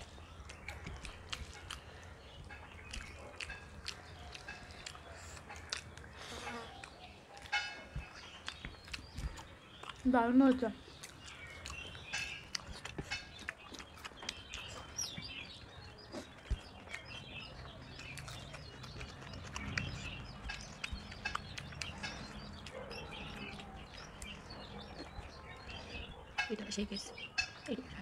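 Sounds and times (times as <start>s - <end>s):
people eating mouth sounds: 0.0s - 28.0s
small birds chirping: 0.0s - 28.0s.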